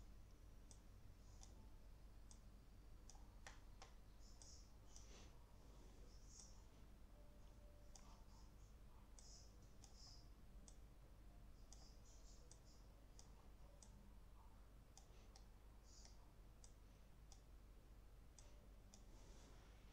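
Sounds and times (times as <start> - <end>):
computer mouse clicks: 0.6 - 5.3, 6.1 - 6.6, 7.9 - 10.9, 11.6 - 14.0, 14.9 - 17.5.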